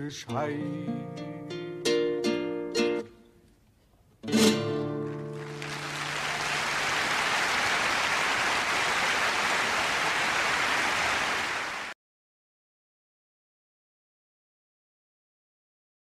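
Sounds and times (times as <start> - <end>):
acoustic guitar chord strummed: 0.2 - 3.3, 4.2 - 5.9
audience applause: 5.0 - 12.0.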